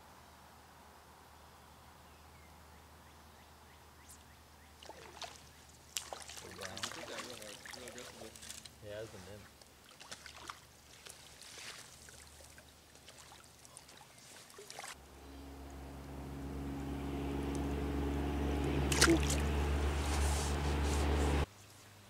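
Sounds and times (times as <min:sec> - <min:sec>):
stream water: 0:04.7 - 0:22.0
fish splashing: 0:04.8 - 0:08.8, 0:09.8 - 0:15.0, 0:17.3 - 0:21.4
low hum with rushing noise: 0:15.0 - 0:21.5.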